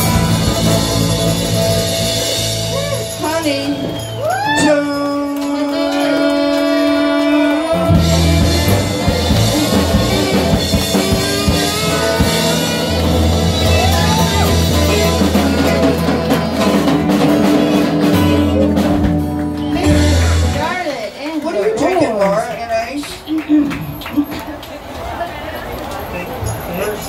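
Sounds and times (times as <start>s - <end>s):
saxophone: 0.0s - 16.9s
bass guitar: 0.0s - 21.9s
electric guitar: 0.0s - 24.7s
drums: 0.0s - 27.0s
woman singing: 3.2s - 16.1s.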